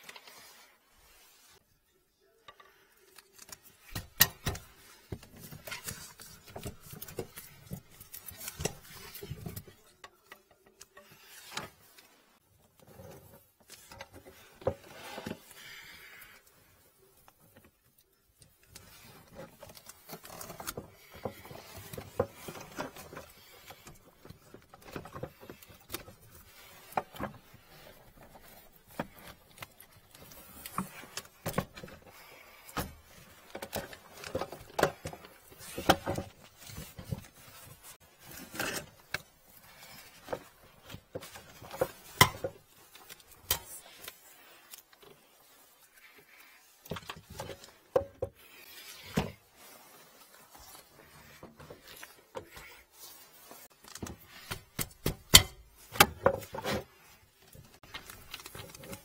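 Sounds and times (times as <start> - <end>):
plastic pipes knocking and rubbing: 18.6 - 43.8, 46.8 - 59.0.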